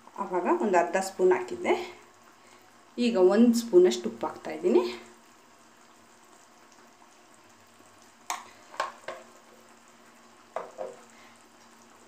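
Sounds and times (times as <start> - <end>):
gravy frying in oil: 0.0 - 12.0
spoon knocking: 10.6 - 11.0.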